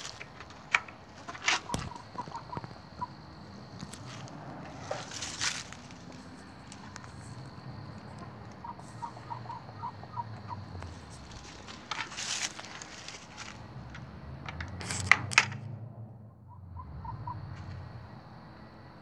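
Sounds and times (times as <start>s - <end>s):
hens clucking softly: 0.0s - 13.1s
rustling: 3.8s - 7.4s, 10.9s - 13.7s.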